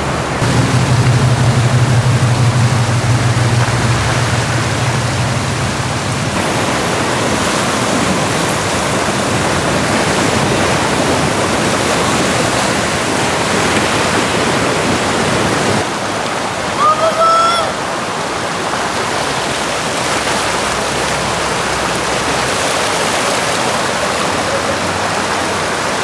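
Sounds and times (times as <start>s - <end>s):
floodwater rushing: 0.0s - 26.0s
low steady hum: 0.1s - 6.8s.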